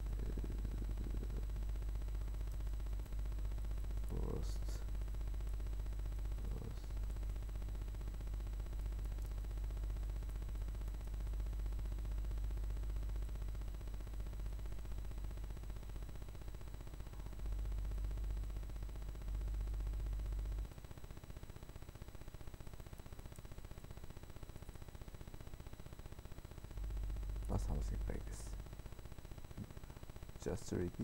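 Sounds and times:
low steady hum: 0:00.0 - 0:31.0
faint clicks: 0:09.0 - 0:09.4.

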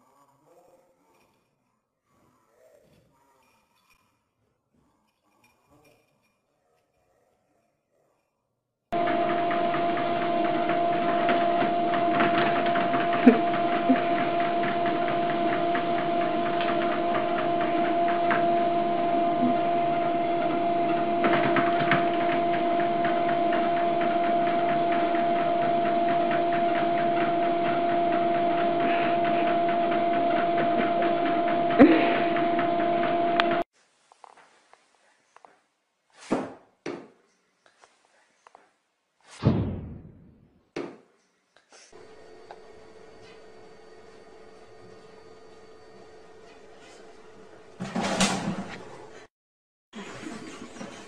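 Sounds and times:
treadmill motor and belt: 0:09.0 - 0:33.6, 0:42.0 - 0:49.3.

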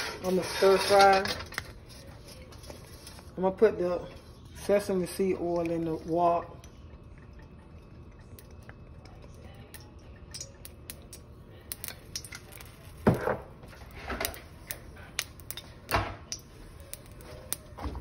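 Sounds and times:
oil crackling in wok: 0:09.7 - 0:13.1, 0:13.8 - 0:17.8.

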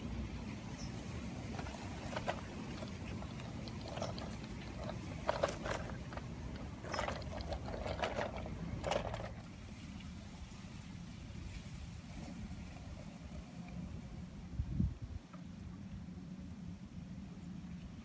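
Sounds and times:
toy truck parts clicking: 0:01.5 - 0:09.4.

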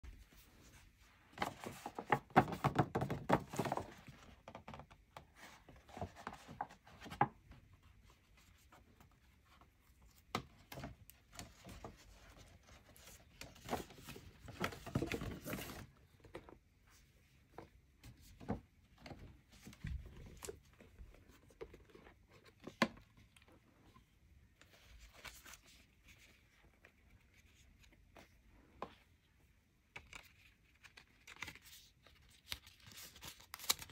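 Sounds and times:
paper rustling and crinkling: 0:00.3 - 0:04.3, 0:10.7 - 0:16.5, 0:30.0 - 0:33.9.

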